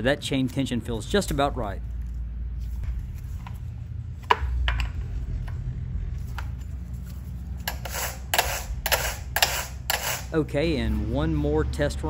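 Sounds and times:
steady low hum: 0.0 - 12.0
loud rasping strokes: 7.6 - 10.4.

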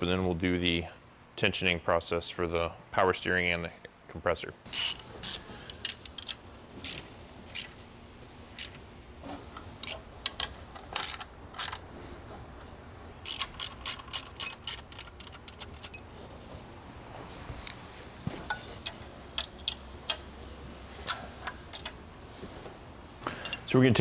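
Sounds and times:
hand ratchet clicking: 13.2 - 16.0, 21.0 - 22.0.

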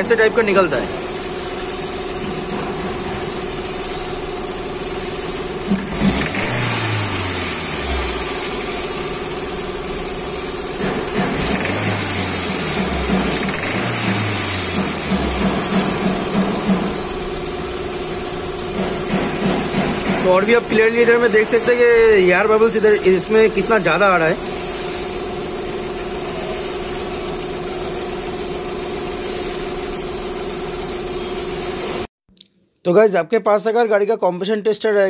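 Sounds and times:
car engine idling: 3.2 - 20.1.

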